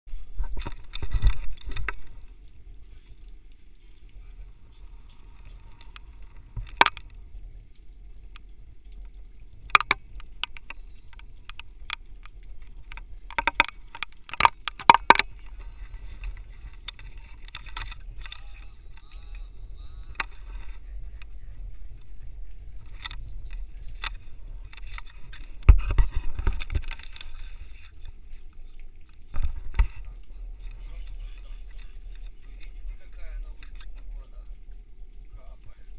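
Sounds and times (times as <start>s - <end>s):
steady low rumble: 1.1s - 35.9s
sharp clicks and knocks: 5.5s - 7.2s, 8.3s - 15.6s.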